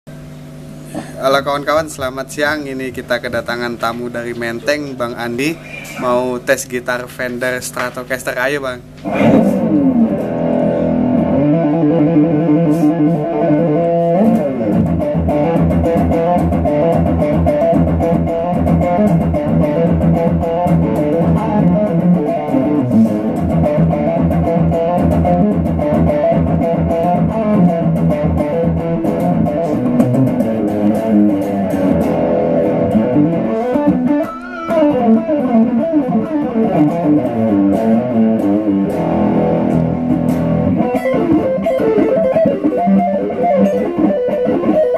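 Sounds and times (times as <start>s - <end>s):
electric guitar melodic runs: 7.2s - 44.9s.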